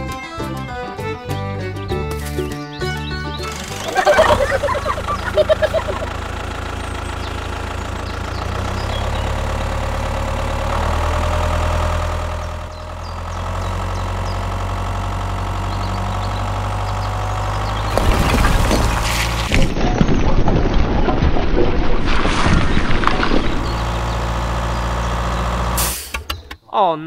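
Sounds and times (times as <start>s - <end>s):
tractor engine idling: 3.3s - 18.0s, 23.5s - 26.5s.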